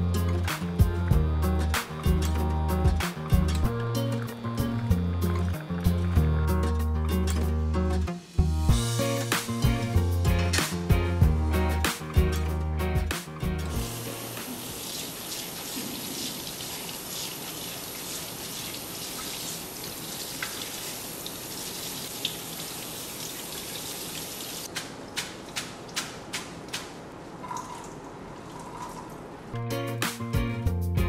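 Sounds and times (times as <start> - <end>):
tap water running into sink: 13.7 - 24.7.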